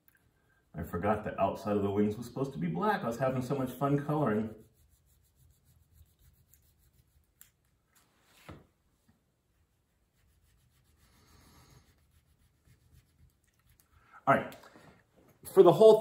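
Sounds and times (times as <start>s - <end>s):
crayon scratching on paper: 3.7s - 7.5s, 10.0s - 13.8s.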